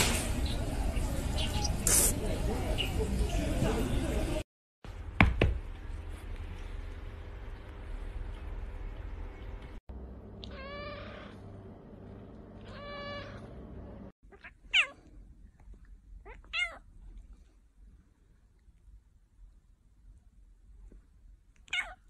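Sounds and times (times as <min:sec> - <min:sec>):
kittens meowing: 0:10.4 - 0:11.4, 0:12.7 - 0:13.5.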